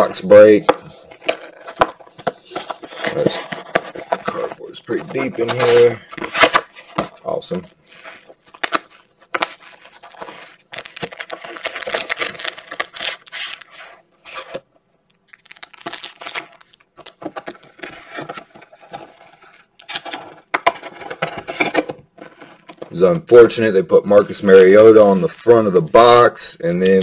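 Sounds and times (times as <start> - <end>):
cardboard rustling and tearing: 0.0 - 14.6, 15.4 - 22.8
foil crinkling: 7.2 - 13.9, 15.3 - 20.3.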